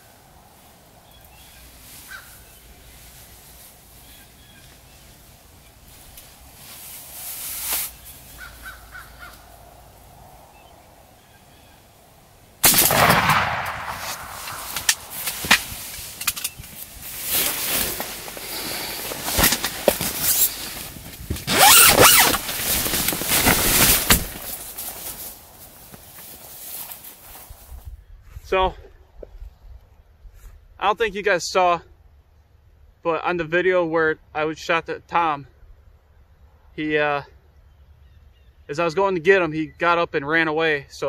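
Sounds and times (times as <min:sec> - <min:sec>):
shotgun shot: 0:12.6 - 0:15.8
rustling and knocking: 0:14.0 - 0:27.0.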